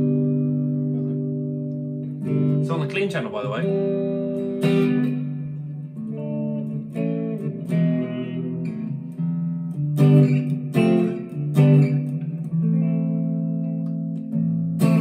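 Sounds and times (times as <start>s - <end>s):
clean electric guitar: 0.0s - 15.0s.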